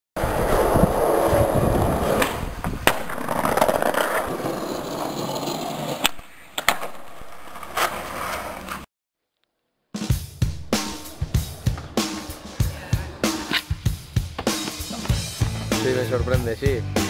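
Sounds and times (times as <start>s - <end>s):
skateboard wheels rolling on pavement: 0.2s - 8.9s, 10.4s - 16.1s
skateboard clacking on ground: 2.1s - 8.8s.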